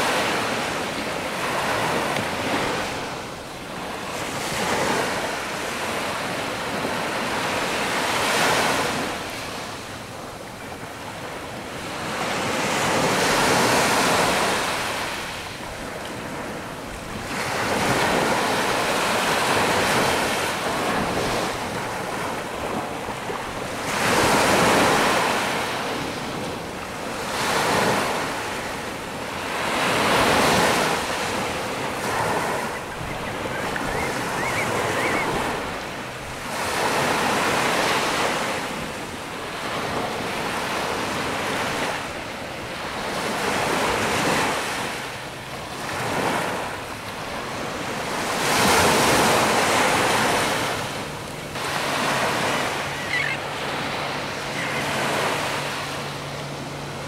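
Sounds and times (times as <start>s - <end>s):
small waves washing on shore: 0.0s - 57.0s
wind buffeting microphone: 30.0s - 36.8s.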